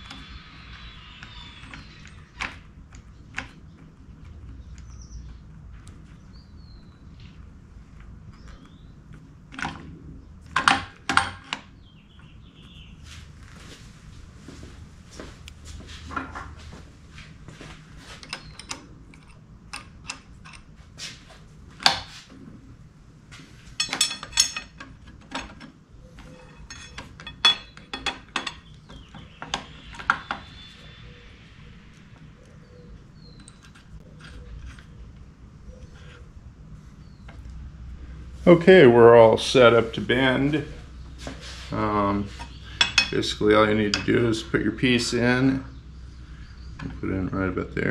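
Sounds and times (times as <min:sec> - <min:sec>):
steel parts clinking and knocking: 0:23.8 - 0:30.4, 0:42.4 - 0:43.2.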